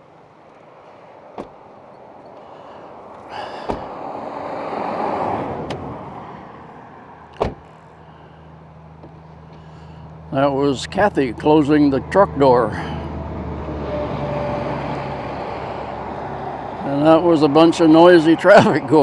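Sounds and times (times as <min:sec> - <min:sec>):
road traffic passing: 0:00.0 - 0:19.0
truck door shutting: 0:01.3 - 0:01.9, 0:03.4 - 0:04.1, 0:05.6 - 0:06.0, 0:07.3 - 0:07.8.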